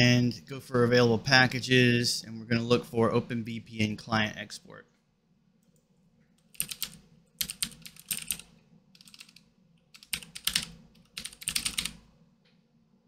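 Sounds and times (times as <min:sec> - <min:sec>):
computer keyboard typing: 0:06.4 - 0:09.4, 0:10.0 - 0:12.0.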